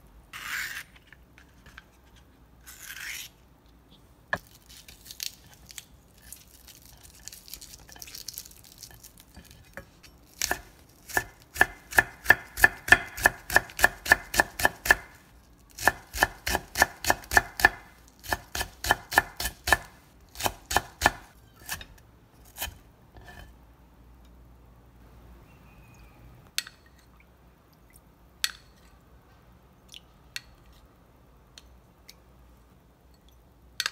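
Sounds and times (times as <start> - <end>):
knife chopping on wooden board: 15.8 - 21.8.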